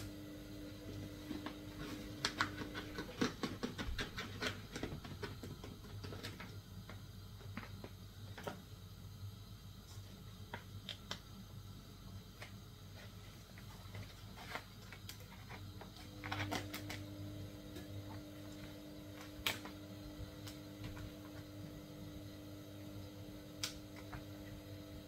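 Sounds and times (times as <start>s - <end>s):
steady hum: 0.0s - 25.0s
packaging clicks and crinkles: 1.2s - 8.6s, 13.6s - 21.4s.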